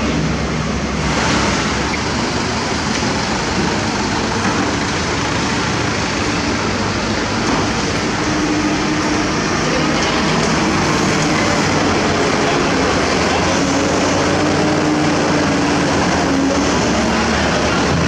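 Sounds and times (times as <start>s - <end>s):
heavy diesel engines running: 0.0s - 18.0s.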